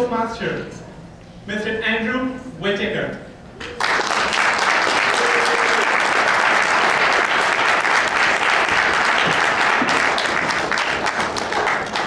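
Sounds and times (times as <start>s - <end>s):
audience applauding: 3.7s - 12.0s.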